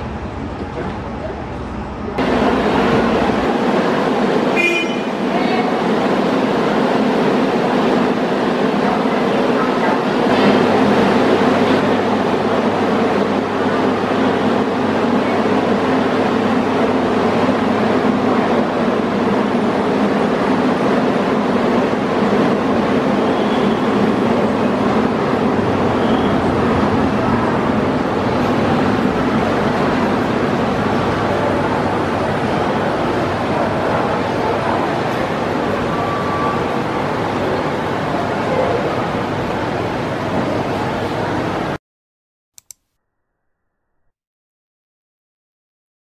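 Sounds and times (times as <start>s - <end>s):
funicular car mechanical rumble: 0.0s - 41.8s.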